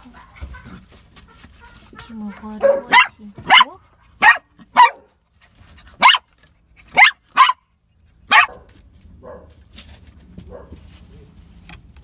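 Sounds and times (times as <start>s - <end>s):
puppy barking: 0.0s - 5.2s, 5.9s - 9.6s, 10.5s - 10.8s.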